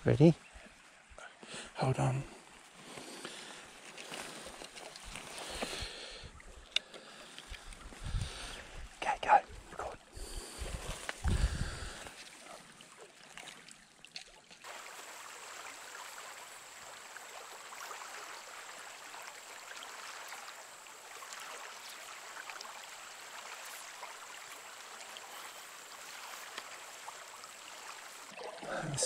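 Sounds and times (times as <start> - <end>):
creek trickling: 0.0 - 29.0
faint clicks: 6.6 - 8.0.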